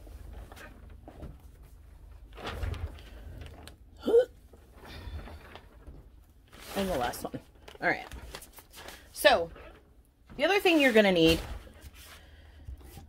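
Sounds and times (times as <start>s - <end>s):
paper rustling: 4.6s - 9.2s.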